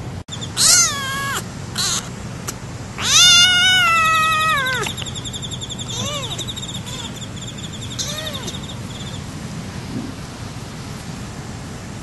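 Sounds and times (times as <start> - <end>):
kitten meowing: 0.5 - 2.1, 3.0 - 5.1, 5.8 - 7.2, 7.9 - 8.6.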